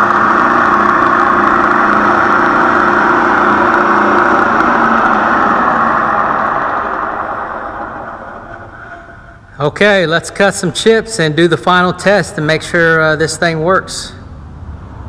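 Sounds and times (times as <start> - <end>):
milling machine spindle spinning: 0.0 - 9.5.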